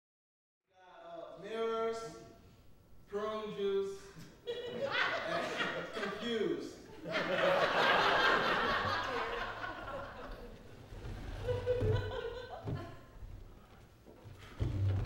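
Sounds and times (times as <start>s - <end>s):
audience laughing: 4.5s - 6.3s, 6.9s - 13.2s.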